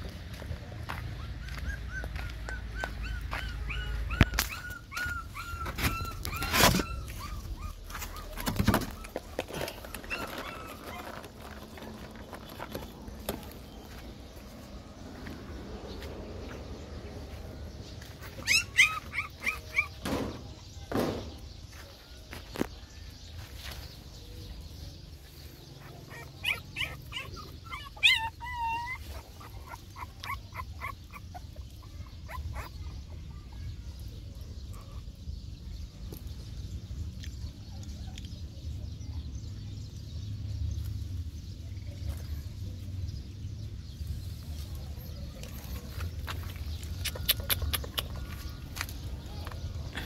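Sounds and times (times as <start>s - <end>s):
puppies whimpering and yipping: 0.8s - 20.7s, 24.7s - 35.7s.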